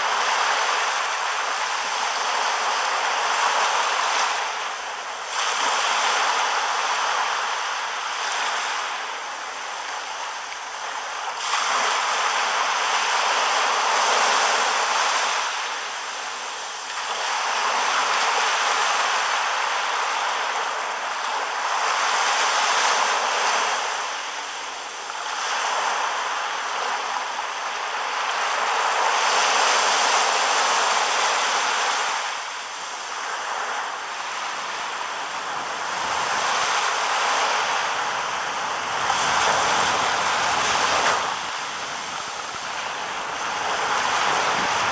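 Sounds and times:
sea waves on a sandy beach: 0:00.0 - 0:44.9.

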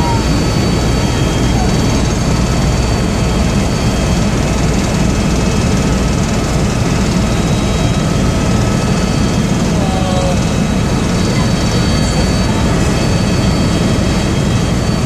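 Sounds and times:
high whines: 0:00.0 - 0:04.9
helicopter rotor and engine drone: 0:00.0 - 0:15.0.

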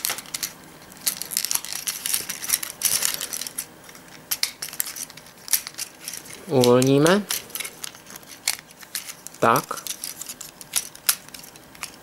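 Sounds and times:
plastic toy parts clicking: 0:04.3 - 0:12.0.

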